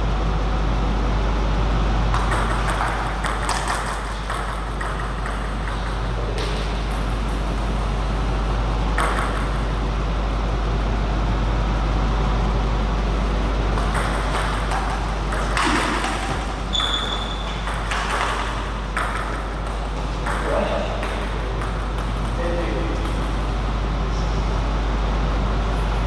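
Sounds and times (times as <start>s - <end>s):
steady low hum: 0.0s - 26.0s
table tennis ball hits: 2.1s - 7.9s, 8.9s - 9.8s, 13.7s - 23.6s
high squeak: 16.7s - 17.6s.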